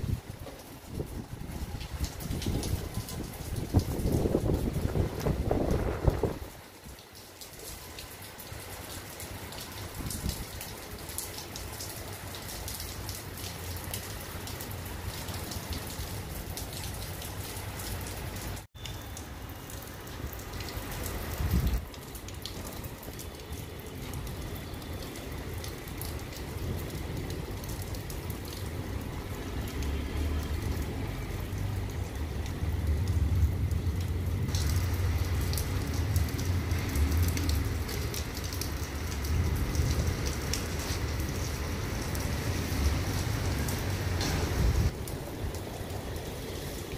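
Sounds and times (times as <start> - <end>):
wind rumbling on microphone: 0.0 - 7.0, 9.8 - 10.6, 21.2 - 21.9, 31.5 - 46.9
rain pattering on rooftop: 0.0 - 46.9.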